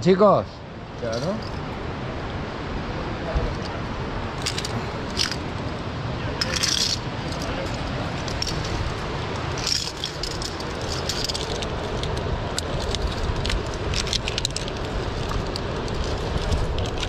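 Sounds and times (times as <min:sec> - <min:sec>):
wind rumbling on microphone: 0:00.8 - 0:17.0
climbing gear clicking on steel cable: 0:04.4 - 0:05.4, 0:06.4 - 0:17.0.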